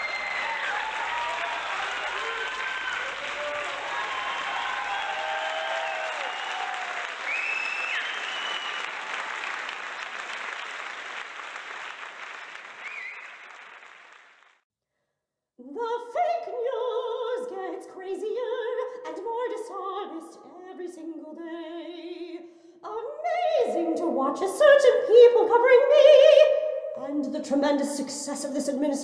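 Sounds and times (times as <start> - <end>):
audience applause: 0.0 - 14.6
opera singing with vibrato: 15.6 - 29.0.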